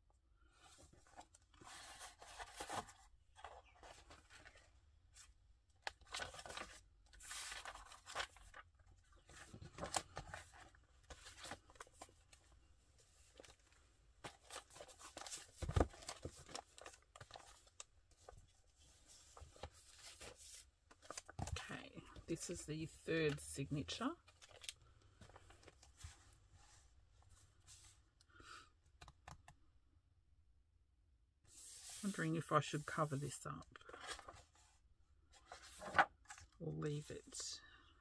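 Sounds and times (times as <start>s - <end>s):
paper pages rustling: 0.7s - 4.7s, 5.9s - 12.5s, 13.2s - 23.5s, 31.5s - 36.6s.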